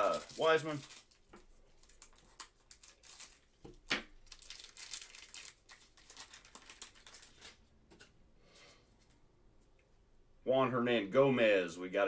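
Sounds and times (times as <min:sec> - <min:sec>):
foil wrapper crinkling and tearing: 0:00.0 - 0:07.6
cards rustling: 0:00.0 - 0:09.2.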